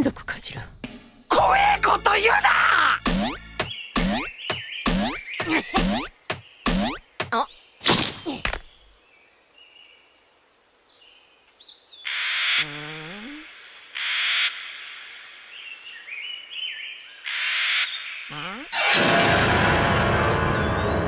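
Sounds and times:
loud cartoon sound effects: 0:01.3 - 0:03.4, 0:18.3 - 0:20.7.

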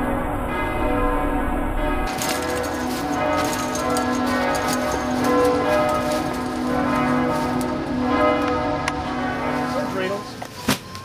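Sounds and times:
bells ringing in a peal: 0:00.0 - 0:11.0.

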